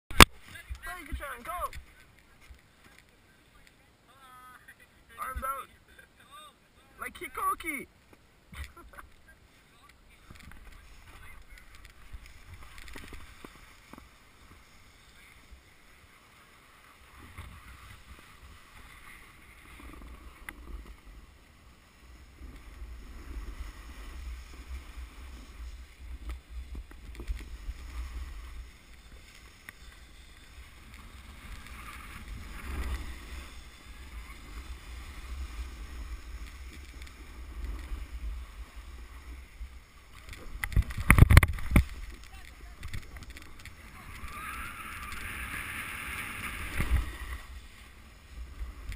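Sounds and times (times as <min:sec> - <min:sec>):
snowboard scraping over snow: 0:10.1 - 0:48.9
low wind rumble on microphone: 0:10.2 - 0:48.9.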